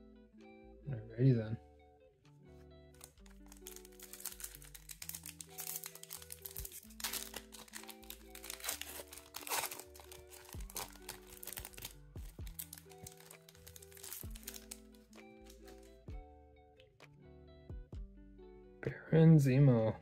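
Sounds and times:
background music: 0:00.0 - 0:20.0
foil pack crinkling and tearing: 0:03.0 - 0:15.9.

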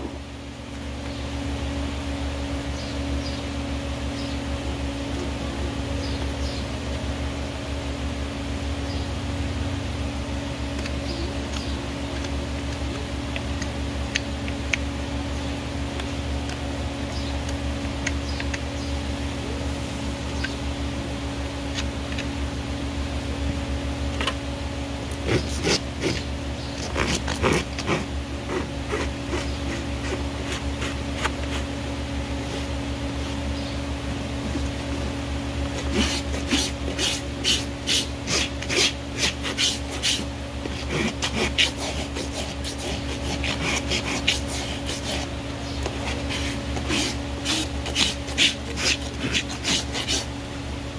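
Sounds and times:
steady low hum: 0:00.0 - 0:50.9
tools scraping hoof: 0:25.1 - 0:31.8, 0:35.6 - 0:50.3.

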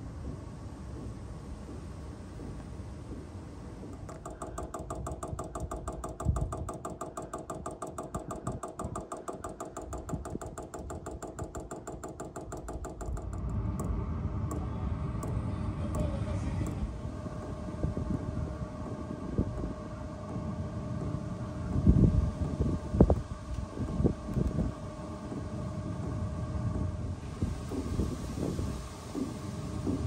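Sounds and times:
steady hum: 0:00.0 - 0:30.0
fuel pump ticking rapidly: 0:02.4 - 0:30.0
knock: 0:03.9 - 0:14.6
low rumble: 0:13.2 - 0:30.0.

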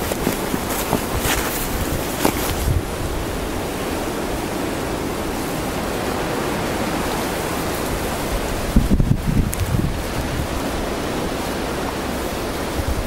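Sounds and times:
low bumps: 0:00.0 - 0:03.1
wind blowing across microphone: 0:00.0 - 0:13.0.

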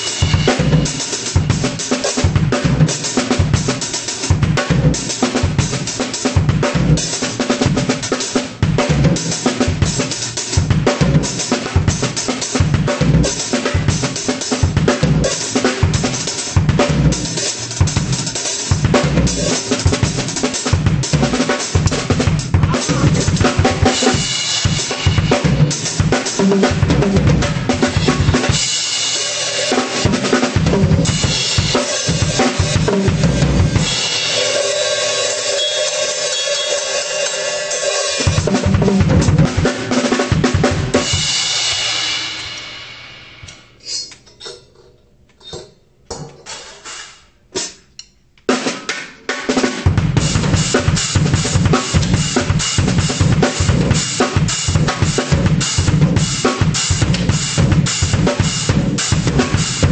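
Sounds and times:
drum kit beat: 0:00.0 - 0:44.2, 0:46.1 - 0:47.9, 0:48.5 - 0:59.9
cymbal crash: 0:41.1 - 0:44.0.

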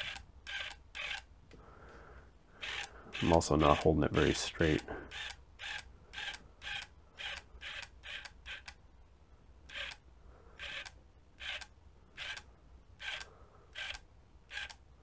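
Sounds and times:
actuator whirring bursts: 0:02.5 - 0:08.8, 0:09.7 - 0:14.8.

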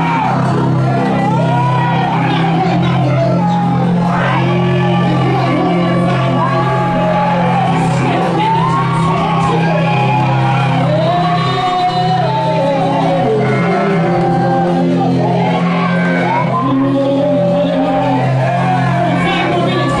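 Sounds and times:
sustained keyboard chords: 0:00.0 - 0:20.0
voices singing and shouting: 0:00.0 - 0:20.0.

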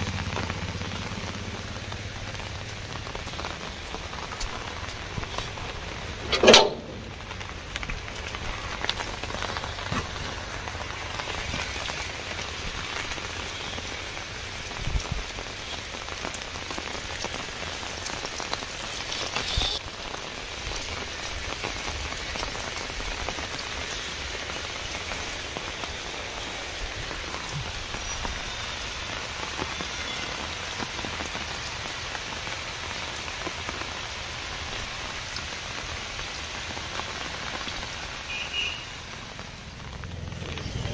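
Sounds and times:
heavy rain on water: 0:00.0 - 0:40.9
metal gate clanking: 0:06.3 - 0:07.2.

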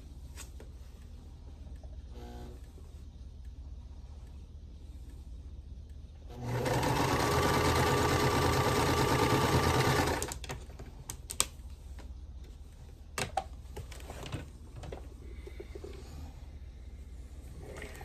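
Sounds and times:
sewing machine stitching: 0:06.3 - 0:10.4.

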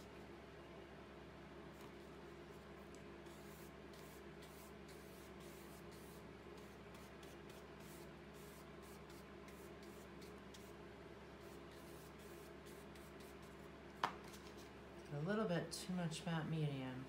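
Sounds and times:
steady low hum: 0:00.0 - 0:17.0
paintbrush strokes on paper: 0:01.8 - 0:10.8, 0:11.4 - 0:13.6.

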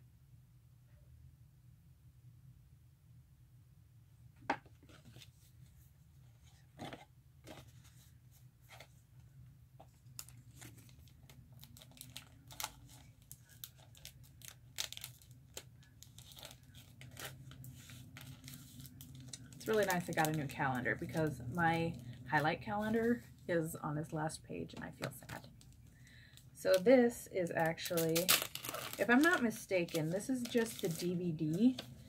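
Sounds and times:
paper rustling and crinkling: 0:04.8 - 0:09.0, 0:09.8 - 0:21.4, 0:27.8 - 0:32.0.

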